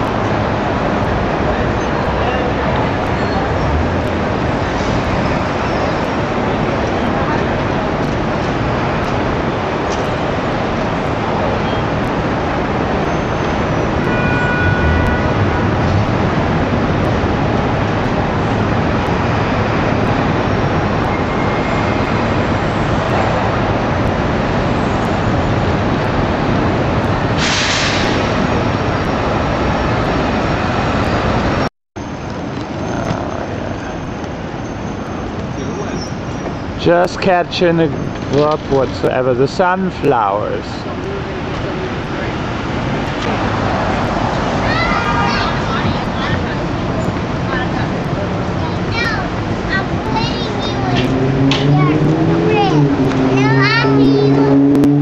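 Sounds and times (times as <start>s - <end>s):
city street traffic: 0.0s - 55.0s
short hiss: 27.4s - 28.3s.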